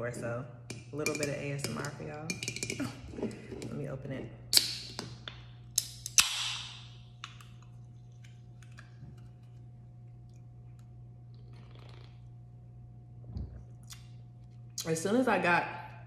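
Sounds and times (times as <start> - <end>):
can opening pop: 4.5 - 5.1, 5.8 - 6.8.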